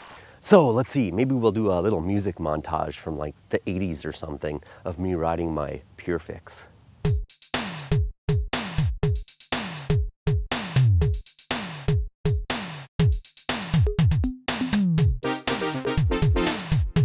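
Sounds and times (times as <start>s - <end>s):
electronic music with drum-machine beat: 7.1s - 17.0s.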